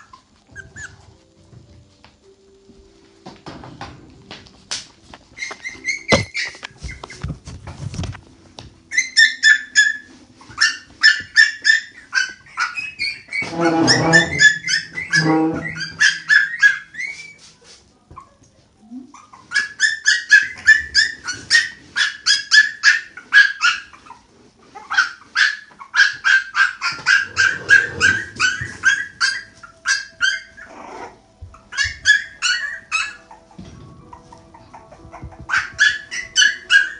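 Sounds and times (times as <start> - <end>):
puppies squealing and whining: 0.0 - 1.3, 5.3 - 8.1, 8.8 - 17.5, 19.0 - 36.9
lower longer puppy cry: 13.3 - 17.1.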